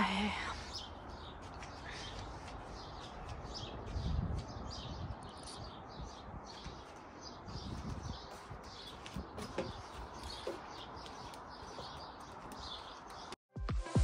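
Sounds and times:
small birds chirping: 0:00.0 - 0:13.4.

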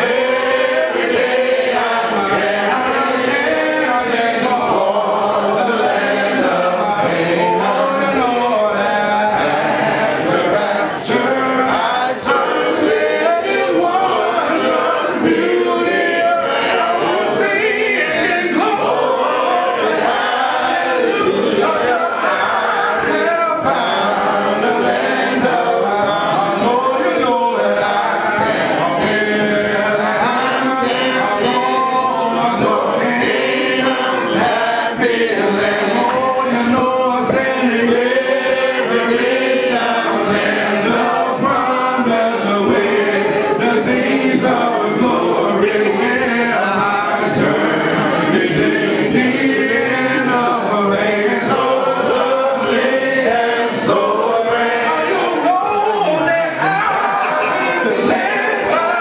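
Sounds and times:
congregation singing a cappella: 0:00.0 - 0:59.0.

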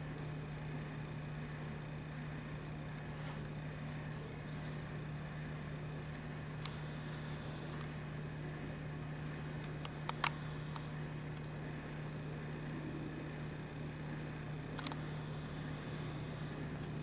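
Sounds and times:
steady low hum: 0:00.0 - 0:17.0
small sharp clicks: 0:06.1 - 0:06.8, 0:09.3 - 0:11.6, 0:14.7 - 0:15.3.

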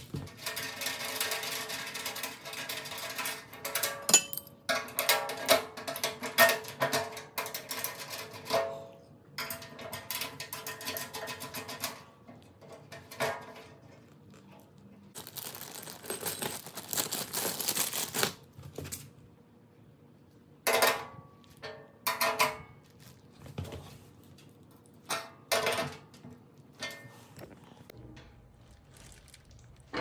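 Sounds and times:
metal clinks and clanks: 0:03.8 - 0:04.6
crinkling rustle: 0:13.9 - 0:18.5, 0:22.8 - 0:25.0, 0:27.3 - 0:30.0.

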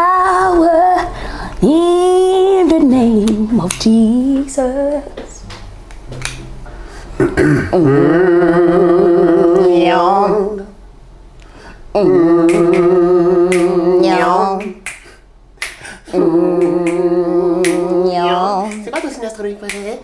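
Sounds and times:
man singing unaccompanied: 0:12.0 - 0:14.8, 0:16.1 - 0:19.0
finger snaps: 0:14.6 - 0:15.9.

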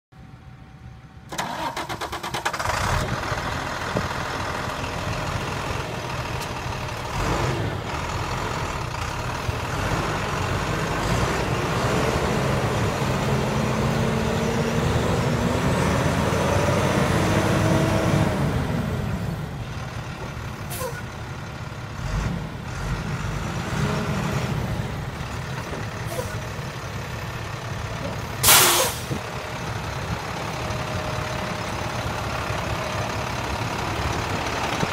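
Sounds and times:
diesel truck engine: 0:00.1 - 0:34.9
short loud hiss: 0:28.4 - 0:29.1.

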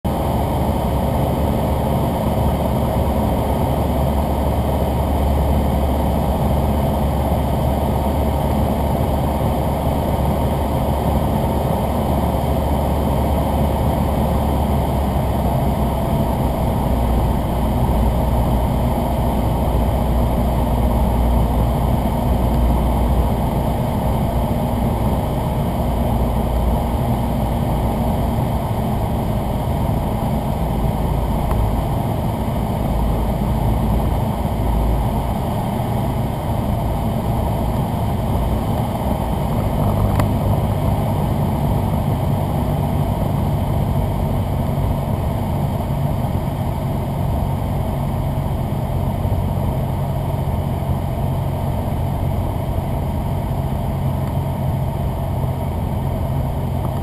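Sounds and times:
airplane engine droning: 0:00.0 - 0:57.0.

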